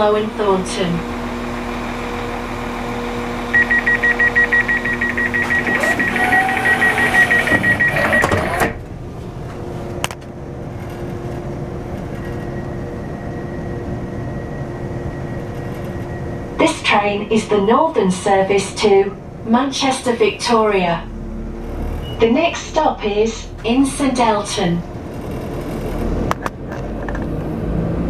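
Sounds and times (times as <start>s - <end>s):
train doors shutting: 0.0s - 27.5s
diesel train hum: 0.0s - 28.0s
door-closing warning beeps: 3.6s - 8.8s, 22.0s - 22.4s.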